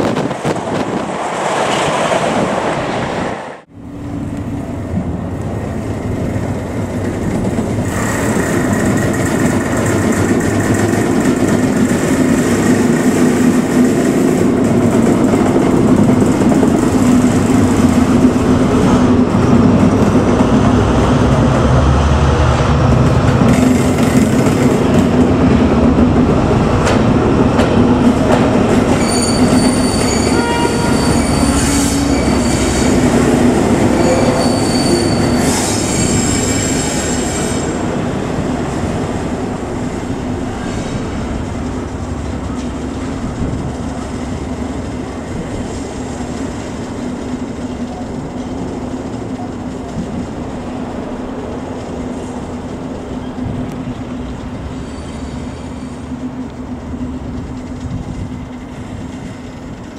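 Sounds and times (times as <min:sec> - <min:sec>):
diesel locomotive engine: 0:00.0 - 0:59.9
high-pitched wheel squeal: 0:28.9 - 0:33.2, 0:33.9 - 0:37.8, 0:54.7 - 0:56.1.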